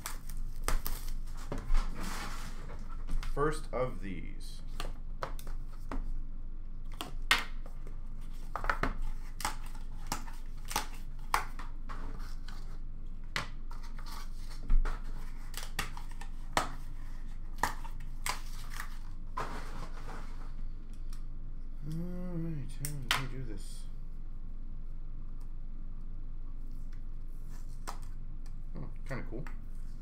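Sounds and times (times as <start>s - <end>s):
wrapper and cardboard tearing: 0.0s - 1.4s, 17.7s - 20.2s.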